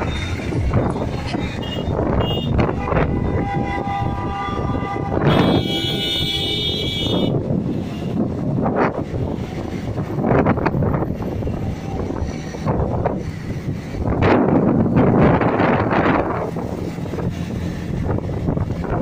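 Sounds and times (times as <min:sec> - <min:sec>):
wind and road noise: 0:00.0 - 0:19.0
vehicle horns: 0:01.3 - 0:08.2
high-pitched horn: 0:01.6 - 0:07.4.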